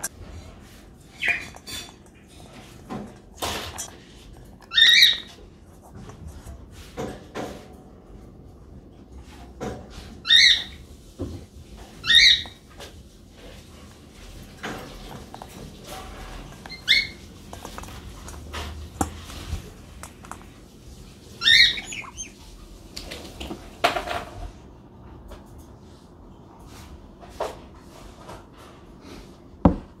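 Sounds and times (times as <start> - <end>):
parrot calls: 1.1 - 1.9, 4.6 - 5.4, 10.2 - 10.8, 12.0 - 12.6, 16.6 - 17.3, 21.4 - 22.5.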